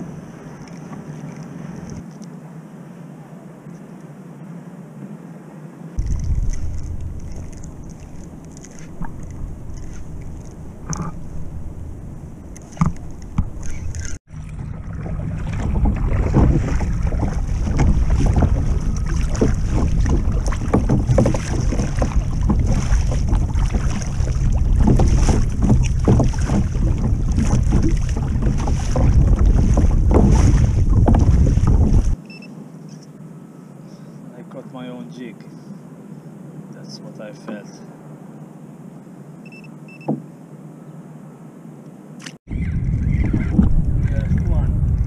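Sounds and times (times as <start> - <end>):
water splashing against kayak hull: 6.0 - 32.2, 42.3 - 45.0
wind buffeting microphone: 6.0 - 32.2, 42.5 - 45.0.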